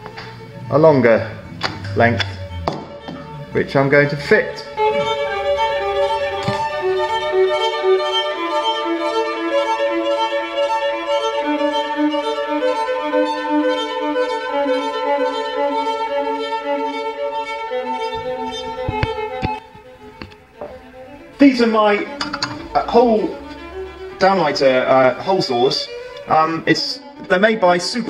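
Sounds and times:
violin long held notes: 0:00.0 - 0:28.0.

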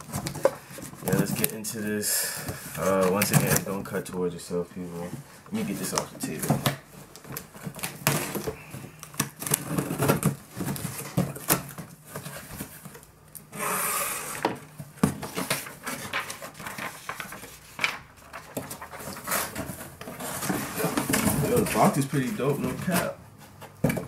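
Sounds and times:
cardboard scraping and rustling: 0:00.0 - 0:03.9, 0:04.9 - 0:24.0
cardboard ripping: 0:05.6 - 0:12.9, 0:13.6 - 0:23.2.

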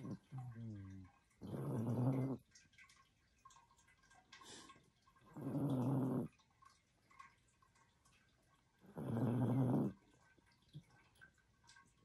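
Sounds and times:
dog snoring: 0:00.0 - 0:02.4, 0:05.3 - 0:06.3, 0:08.8 - 0:10.0.

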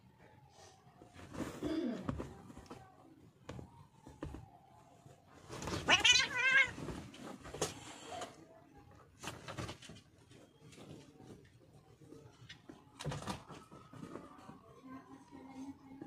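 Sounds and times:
cats wrestling on bedding: 0:00.1 - 0:14.7
cat yowling: 0:05.8 - 0:06.8.

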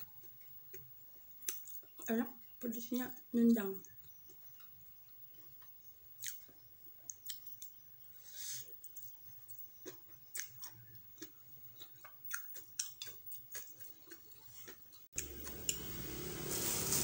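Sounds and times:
person chewing noodles: 0:00.0 - 0:02.1, 0:03.8 - 0:15.8
steady hiss: 0:15.7 - 0:17.0.

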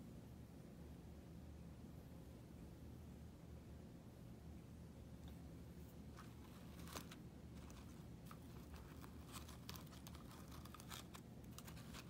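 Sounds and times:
jewelry handling clicks and rustles: 0:06.1 - 0:12.0.

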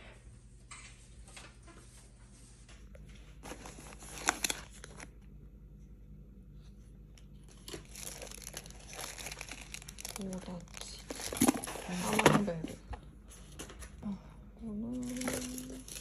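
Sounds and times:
low steady hum: 0:00.0 - 0:16.0
packaging crinkling and tearing: 0:03.4 - 0:05.2, 0:07.4 - 0:12.6, 0:15.0 - 0:16.0.

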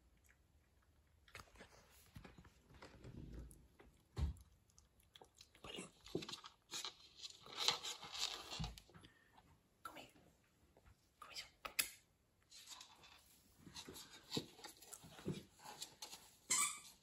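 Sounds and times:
puppy scratching on floor: 0:06.1 - 0:08.7.

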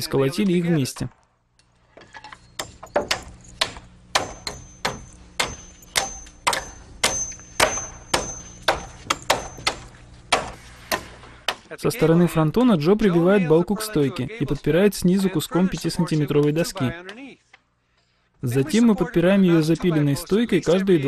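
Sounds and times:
hammer driving nails into wood: 0:02.0 - 0:11.7.

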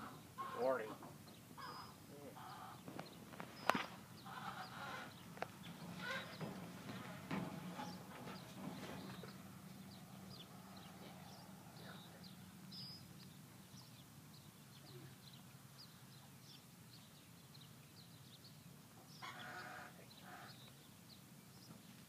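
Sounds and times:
distant farm animal call: 0:00.0 - 0:03.0, 0:03.6 - 0:13.1, 0:19.0 - 0:20.7.

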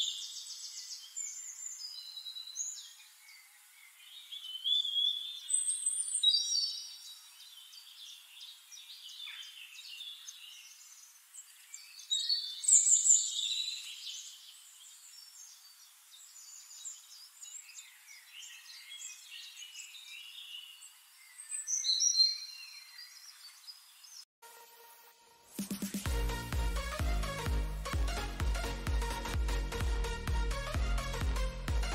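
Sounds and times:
small birds chirping and trilling: 0:00.0 - 0:24.3.

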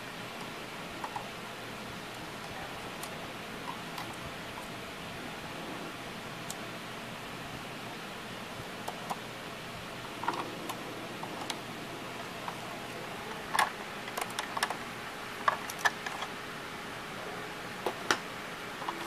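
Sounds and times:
plastic parts clicking and knocking: 0:13.4 - 0:14.8, 0:15.4 - 0:16.3.

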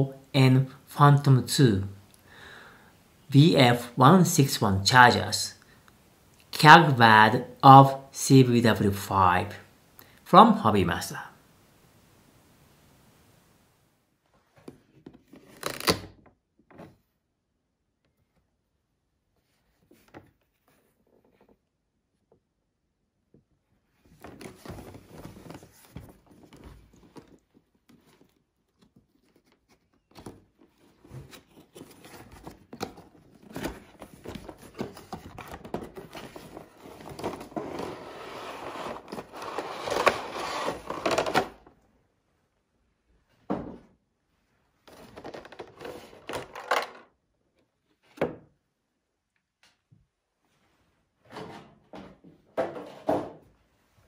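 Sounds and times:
cardboard and plastic rustling: 0:24.0 - 0:41.7, 0:44.9 - 0:47.1.

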